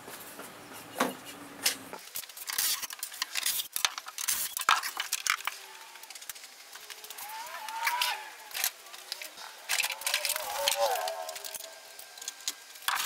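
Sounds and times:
small objects clicking and scraping: 2.0 - 13.0.

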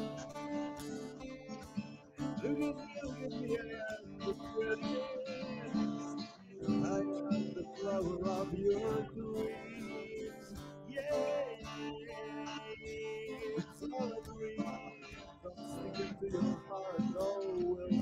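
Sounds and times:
acoustic guitar strumming: 0.0 - 18.0.

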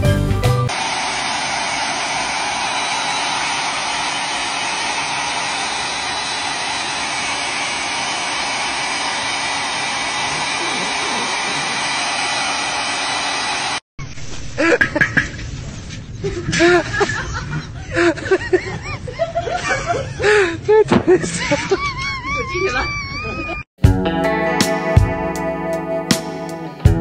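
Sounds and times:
hair dryer blowing: 0.7 - 13.8
person laughing: 10.2 - 11.8, 14.6 - 15.2, 16.2 - 23.6.

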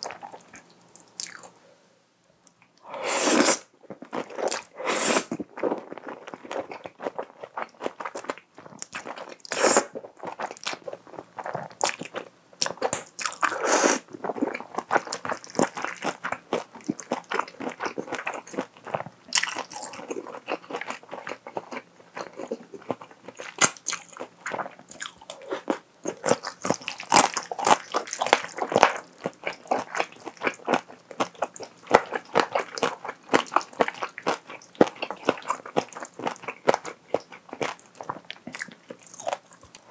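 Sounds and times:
chewing with wet mouth clicks: 0.0 - 1.5, 14.3 - 39.9
slurping noodles: 2.9 - 3.7, 4.5 - 5.4, 13.4 - 14.0.

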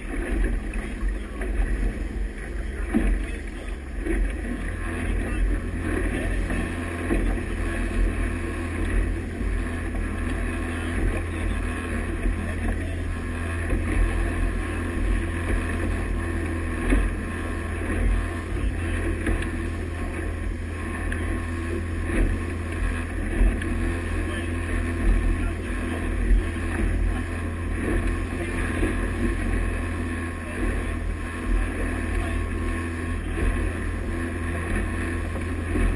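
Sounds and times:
motorboat engine running: 0.0 - 35.9
water rushing from wake: 0.0 - 35.9.

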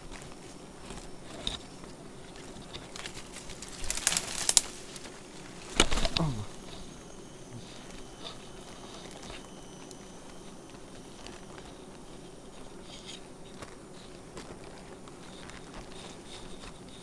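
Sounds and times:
leaves and twigs rustling: 0.0 - 17.0
twigs snapping: 2.3 - 6.8.

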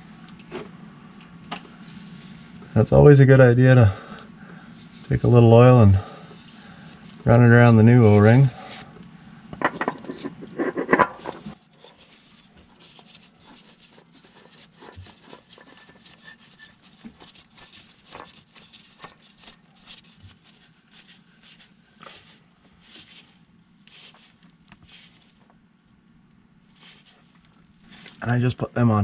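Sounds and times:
oil filter scraping on threads: 9.6 - 25.6.

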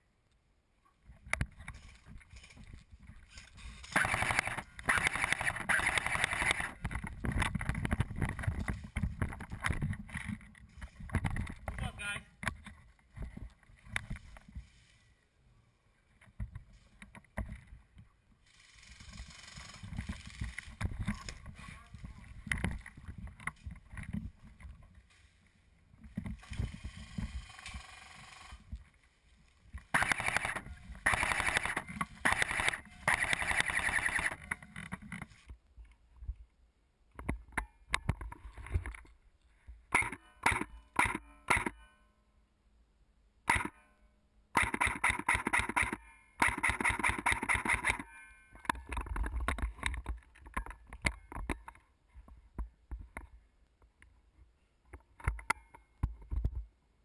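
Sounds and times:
airsoft rifle rapid fire: 3.8 - 6.8, 29.9 - 34.4, 44.6 - 48.0.

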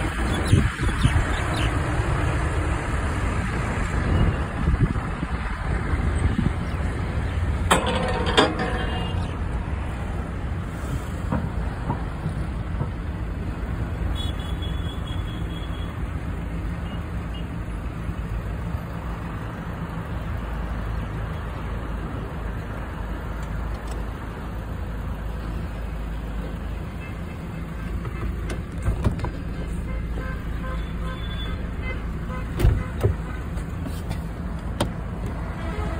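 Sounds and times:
car engine rumble: 0.0 - 35.9
car road noise: 0.0 - 35.9.

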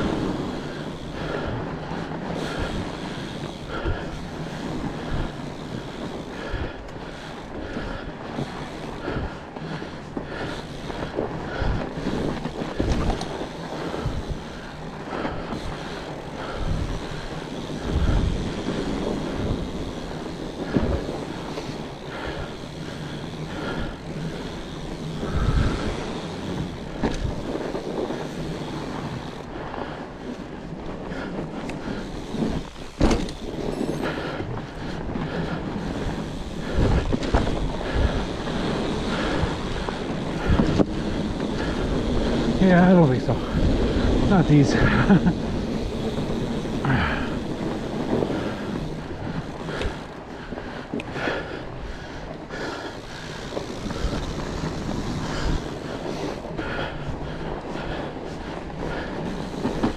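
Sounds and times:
bike tyres rolling over trail: 0.0 - 59.9
wind buffeting microphone: 0.0 - 59.9
bike jolting thumps: 32.1 - 34.6.

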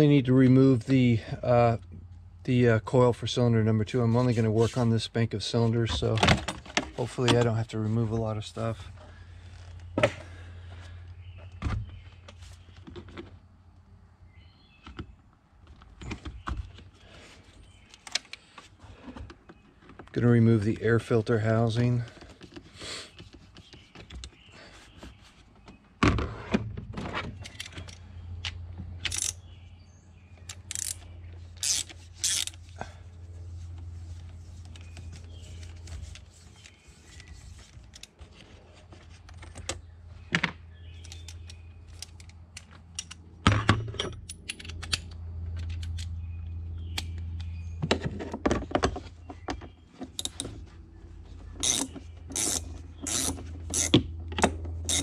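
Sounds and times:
steady low hum: 26.0 - 48.2
hand tools clicking and clinking: 29.0 - 29.4, 51.6 - 54.0, 54.8 - 55.0.

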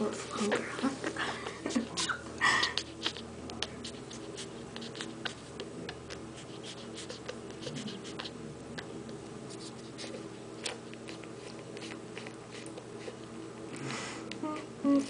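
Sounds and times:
puppy sucking clicks and smacks: 1.7 - 9.3, 10.0 - 12.9.

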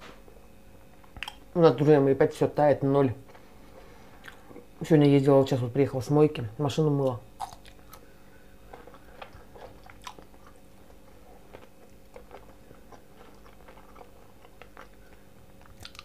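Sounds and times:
person chewing: 1.0 - 1.4, 4.2 - 4.7, 7.4 - 16.0.

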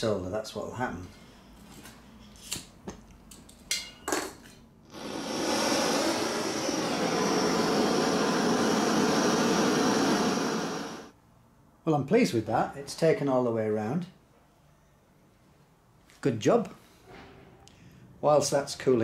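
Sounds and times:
blowtorch flame hissing: 4.9 - 11.2.

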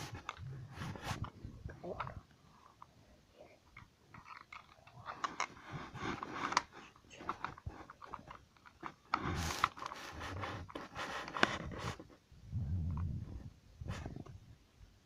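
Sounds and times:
hands handling plastic toy: 0.0 - 12.2
cardboard packaging rustling: 4.1 - 12.2.

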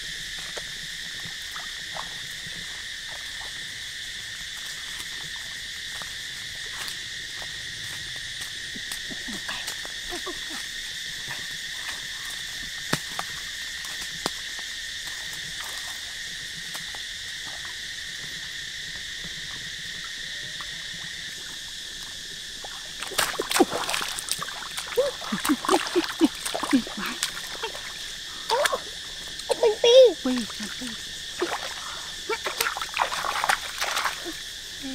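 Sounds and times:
insects and frogs calling: 0.0 - 34.9
water splashing from wading: 22.6 - 34.7.

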